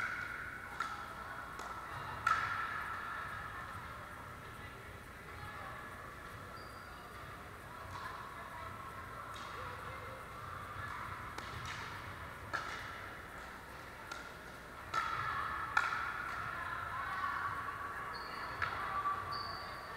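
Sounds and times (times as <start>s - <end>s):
steady background hum: 0.0s - 19.9s.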